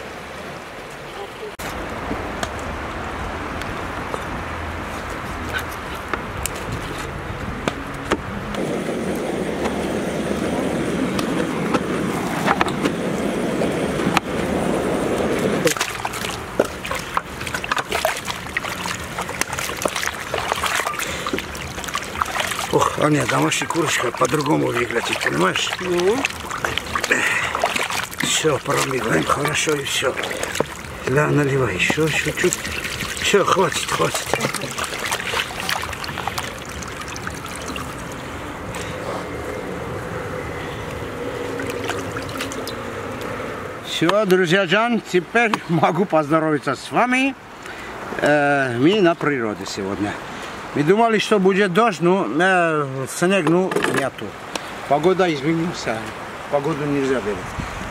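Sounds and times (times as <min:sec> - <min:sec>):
water sloshing and splashing: 0:00.0 - 0:46.4, 0:53.1 - 0:57.9
wind on microphone: 0:57.2 - 0:57.9.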